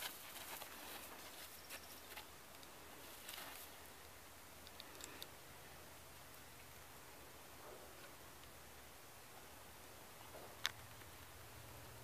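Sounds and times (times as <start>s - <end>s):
light ticks: 2.5s - 2.8s, 4.0s - 5.3s.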